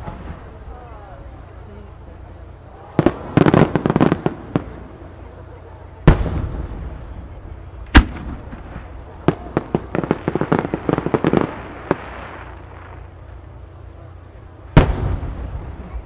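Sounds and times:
firework crackling bursts: 0.0s - 16.0s
firework shell booms: 6.1s - 7.2s, 7.9s - 13.0s, 14.8s - 16.0s.

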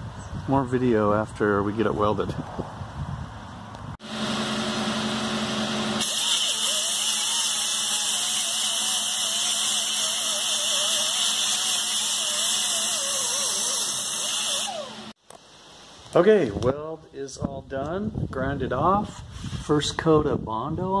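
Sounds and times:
welder hum: 4.0s - 15.2s
welding arc hissing: 6.0s - 15.2s.

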